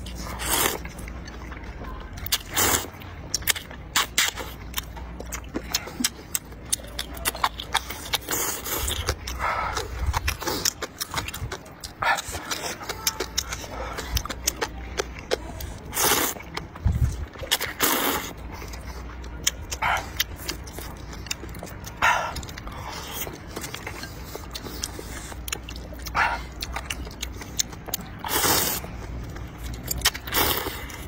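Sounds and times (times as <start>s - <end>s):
wet chewing and mouth clicks: 0.0s - 31.0s
person slurping noodles: 15.9s - 16.4s, 17.6s - 18.3s, 28.2s - 28.9s, 30.2s - 31.0s.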